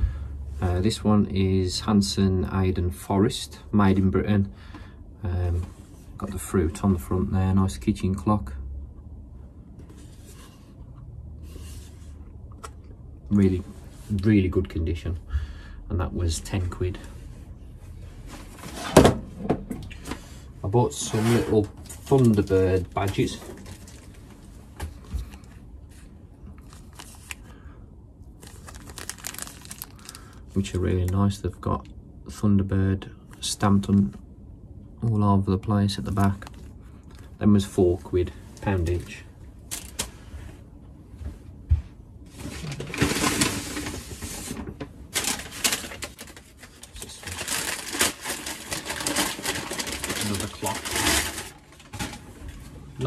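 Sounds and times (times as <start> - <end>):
plastic bags rustling: 20.9 - 27.6, 28.3 - 30.8, 36.2 - 37.3, 38.9 - 40.2, 42.3 - 52.6.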